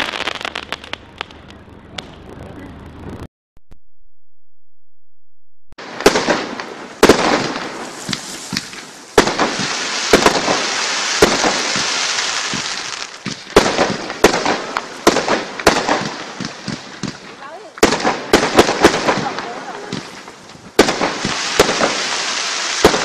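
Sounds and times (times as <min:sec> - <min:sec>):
firework crackling hiss: 0:00.0 - 0:03.3, 0:05.8 - 0:23.0
firework shells bursting: 0:05.9 - 0:23.0.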